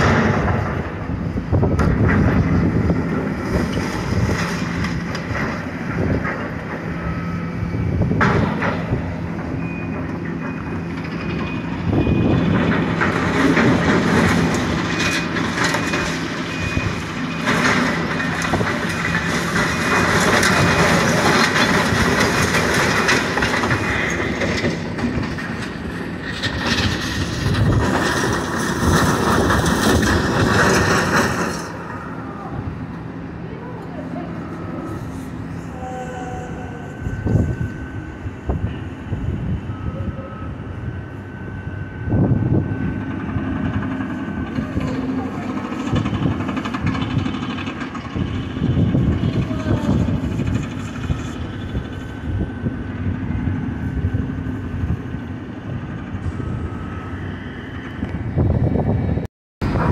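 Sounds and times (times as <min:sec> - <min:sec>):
excavator diesel engine: 0:00.0 - 0:59.9
debris clattering and crunching: 0:08.2 - 0:32.1.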